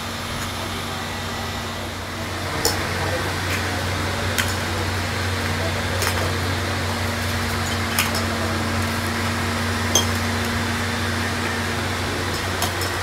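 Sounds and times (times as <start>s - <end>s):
electric machinery hum: 0.0s - 13.0s
small metallic clink: 9.9s - 10.3s.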